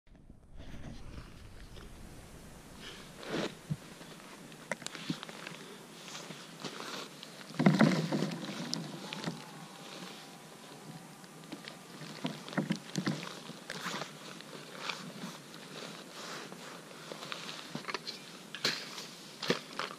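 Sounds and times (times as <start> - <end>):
jacket rustling: 0.2 - 10.8.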